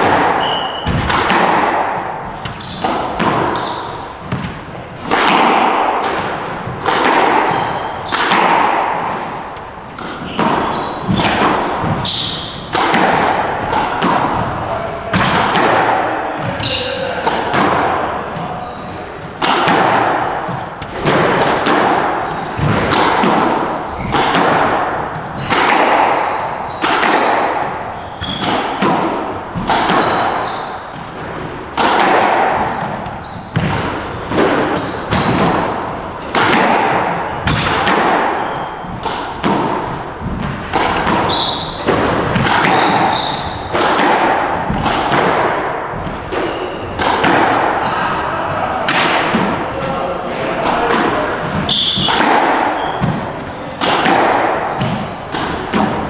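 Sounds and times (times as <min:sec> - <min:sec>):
shoes squeaking on hardwood floor: 0:00.0 - 0:05.5, 0:06.5 - 0:12.8, 0:13.7 - 0:15.0, 0:16.3 - 0:17.2, 0:18.0 - 0:44.8, 0:46.0 - 0:49.4, 0:51.3 - 0:53.7
squash ball hits echoing: 0:00.0 - 0:56.0.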